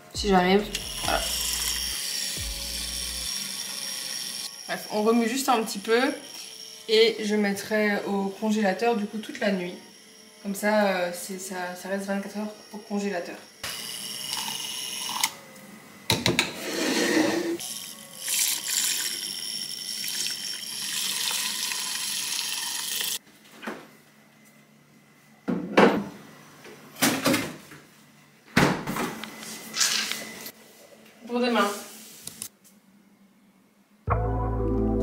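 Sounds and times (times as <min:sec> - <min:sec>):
milk frother whirring: 0:00.6 - 0:23.2.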